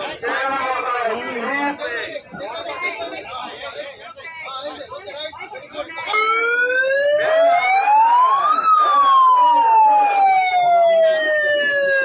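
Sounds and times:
emergency siren wailing: 6.1 - 12.0.

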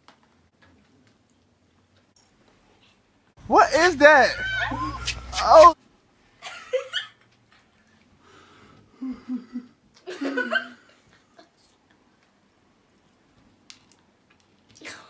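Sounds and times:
person laughing softly: 8.9 - 11.6.

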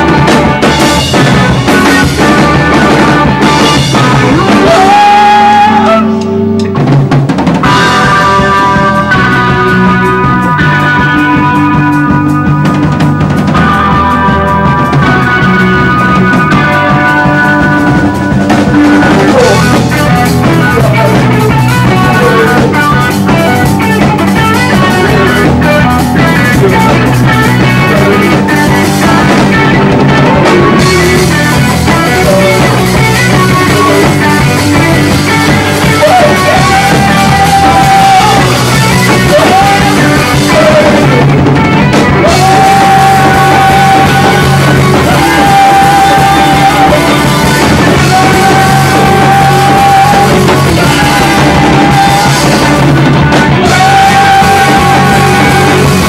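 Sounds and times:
person singing into a microphone: 0.0 - 6.4, 13.5 - 56.0
drum kit: 0.0 - 56.0
electric guitar: 0.0 - 56.0.

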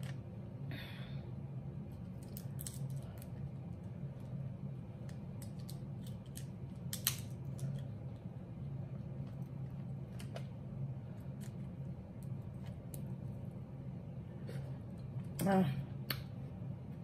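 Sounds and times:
steady low hum: 0.0 - 17.0
crab shell clicking and crackling: 2.1 - 3.4, 5.0 - 8.2.

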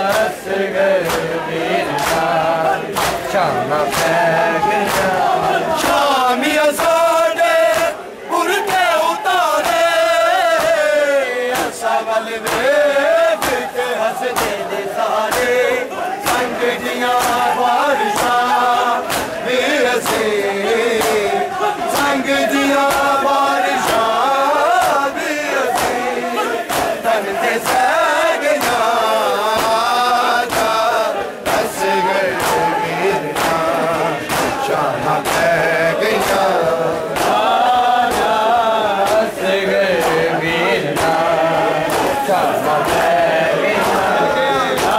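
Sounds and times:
men chanting in unison: 0.0 - 44.9
hands slapping bare chests: 1.0 - 4.2, 4.8 - 5.2, 9.6 - 9.9, 10.5 - 10.9, 11.5 - 19.4, 20.0 - 21.3, 22.8 - 27.9, 28.5 - 30.8, 31.4 - 39.4, 40.0 - 44.9.

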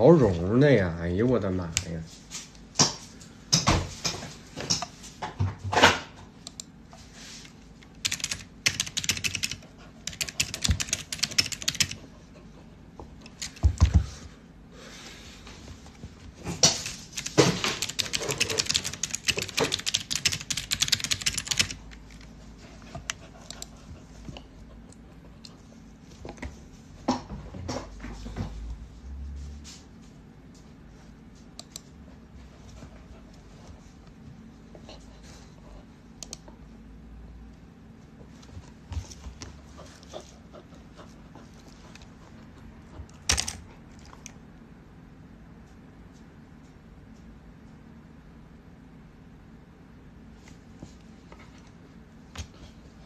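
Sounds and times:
typing on computer keyboard: 8.0 - 12.0, 17.2 - 22.2, 43.3 - 43.6.

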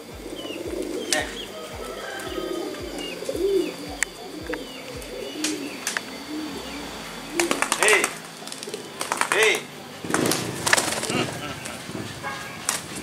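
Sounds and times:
high chirping calls: 0.0 - 11.9
pigeons cooing: 0.0 - 13.0
sharp cracks: 7.1 - 11.8.

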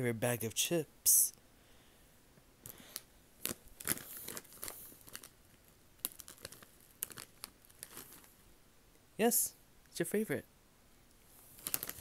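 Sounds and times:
chip bag crinkling: 2.7 - 8.4, 11.5 - 12.0.

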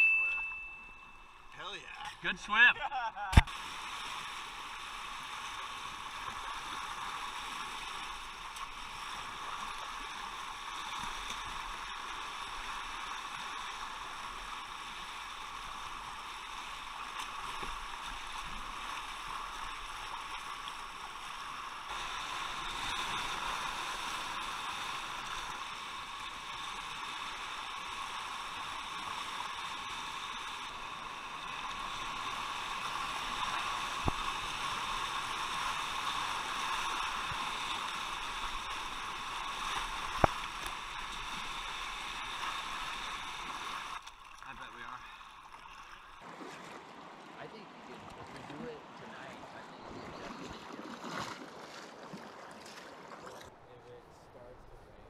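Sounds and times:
river water rushing: 27.1 - 50.0.

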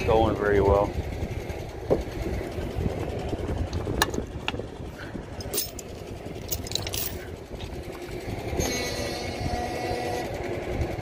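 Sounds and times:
tractor engine idling: 0.0 - 11.0
steel chain clinking: 5.4 - 7.4.

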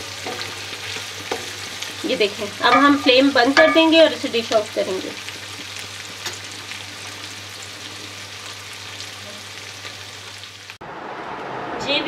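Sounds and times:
chicken sizzling in oil: 0.0 - 11.4
wooden spoon knocking: 2.7 - 4.0.

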